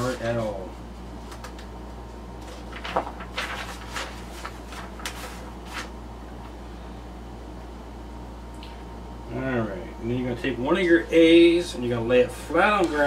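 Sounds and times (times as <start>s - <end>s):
steady low hum: 0.0s - 13.0s
paper rustling and knocks: 2.4s - 6.0s.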